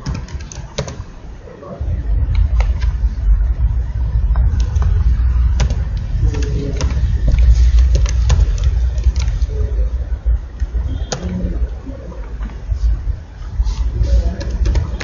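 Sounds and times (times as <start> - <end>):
keyboard keys clicking: 0.0 - 1.1, 4.4 - 9.7, 14.2 - 15.0
low steady rumble: 1.0 - 15.0.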